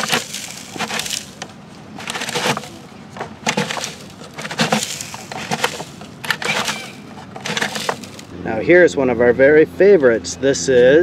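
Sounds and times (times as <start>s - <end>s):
sand scraping in toy mixer drum: 0.0s - 8.3s.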